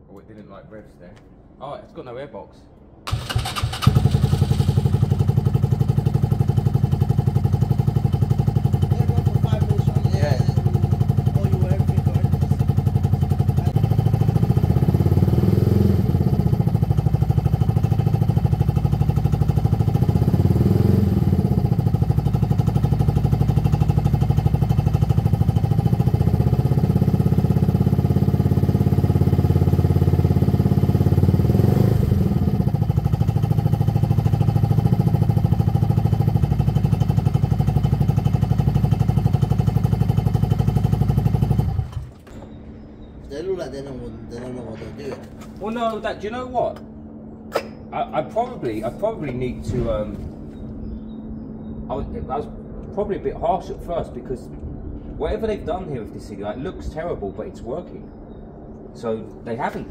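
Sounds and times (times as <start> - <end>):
scooter engine idling and revving: 3.1 - 42.2.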